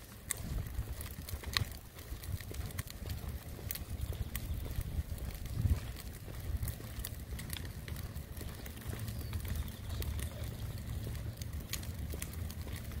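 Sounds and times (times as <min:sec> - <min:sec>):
footsteps on pavement: 0:00.0 - 0:13.0
wind on microphone: 0:00.3 - 0:06.9.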